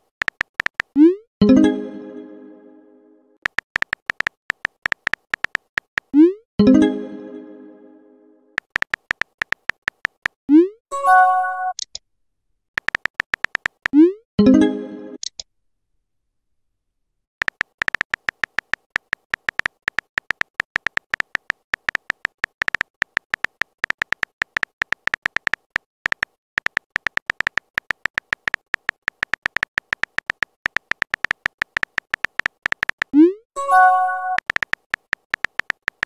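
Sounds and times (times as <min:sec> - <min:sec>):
keyboard typing clicks: 0:00.0 - 0:01.2, 0:03.4 - 0:06.4, 0:08.6 - 0:10.7, 0:12.8 - 0:14.2, 0:17.4 - 0:36.0.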